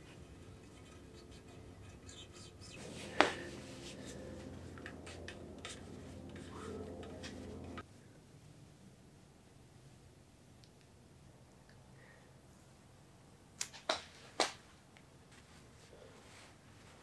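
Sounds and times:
paper towel rubbing and crinkling: 0:02.8 - 0:07.7.

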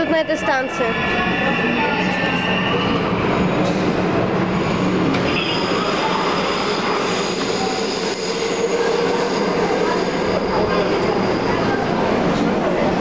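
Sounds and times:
train and station noise: 0:00.0 - 0:13.0.

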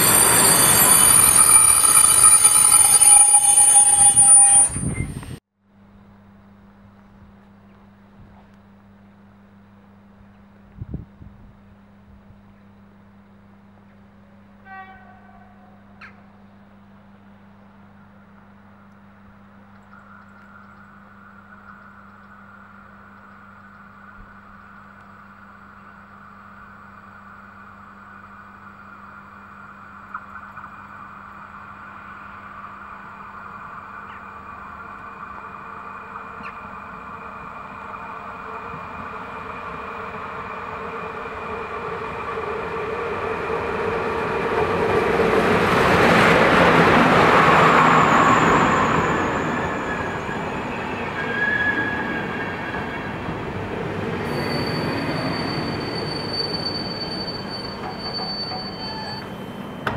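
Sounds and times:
passenger train passing: 0:00.0 - 0:05.4, 0:25.2 - 0:59.9
wheel and brake squeals: 0:00.0 - 0:05.4, 0:47.6 - 0:53.3, 0:54.2 - 0:59.9.

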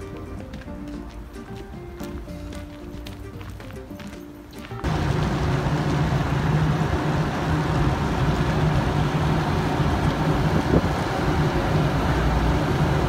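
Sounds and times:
passing road traffic rumble: 0:04.8 - 0:13.0
wind buffeting microphone: 0:04.8 - 0:13.0.

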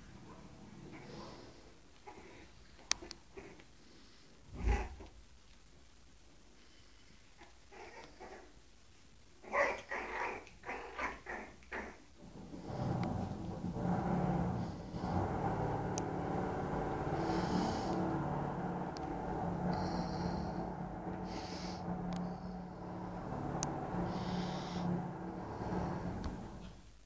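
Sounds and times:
puppies growling and snorting: 0:09.4 - 0:26.7.

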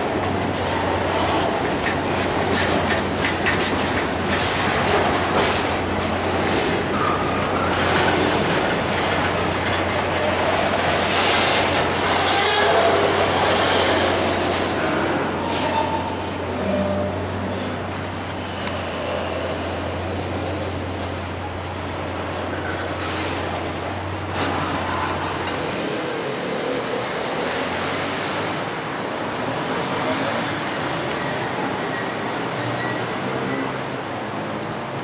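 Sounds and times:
train wheels clacking over rail joints: 0:00.0 - 0:26.1
train rumble: 0:00.0 - 0:35.0
wheels squealing on rail: 0:06.2 - 0:28.0, 0:30.1 - 0:34.0.

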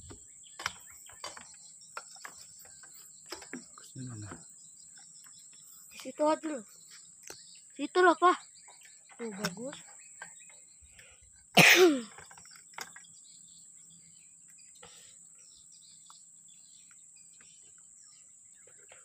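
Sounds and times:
faint chirps: 0:00.0 - 0:19.0
person coughing: 0:11.6 - 0:12.1.

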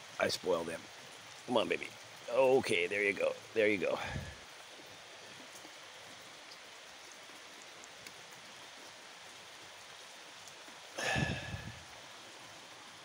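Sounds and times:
rain hissing: 0:00.0 - 0:13.0
faint ticks: 0:06.4 - 0:08.4.

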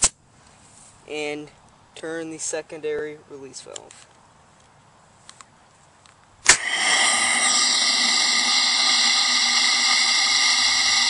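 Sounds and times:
valve pop: 0:06.4 - 0:11.0
compressed air hissing and whistling: 0:06.5 - 0:11.0.

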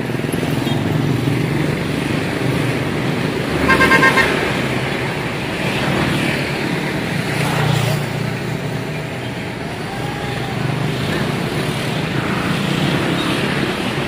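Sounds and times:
truck diesel engine rumbling: 0:00.0 - 0:07.3.

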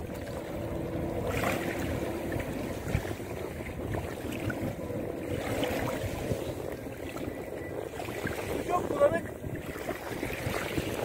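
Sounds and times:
small waves lapping: 0:00.0 - 0:11.0.

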